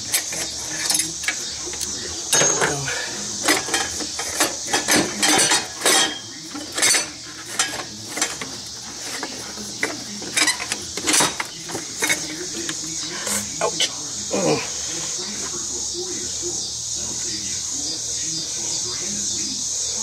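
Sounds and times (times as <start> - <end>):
metal tools clinking on metal: 0.0 - 14.0.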